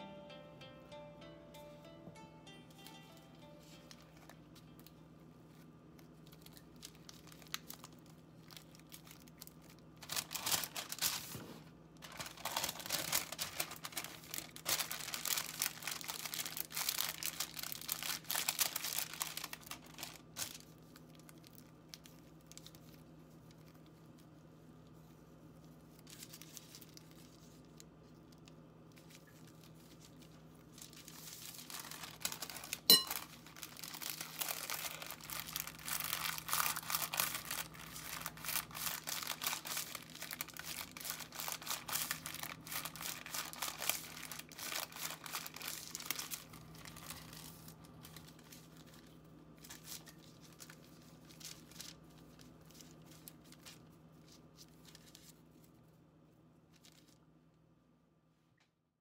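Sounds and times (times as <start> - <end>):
paper crinkling: 2.9 - 56.0, 56.6 - 57.2.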